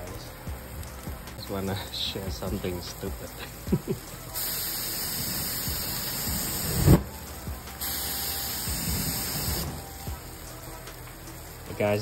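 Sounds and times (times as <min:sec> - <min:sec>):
hand sprayer hissing: 0:00.0 - 0:12.0.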